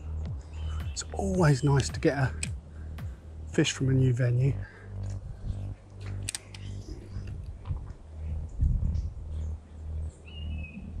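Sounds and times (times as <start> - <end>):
low rumble on microphone: 0.0 - 11.0
sharp click: 6.0 - 6.8.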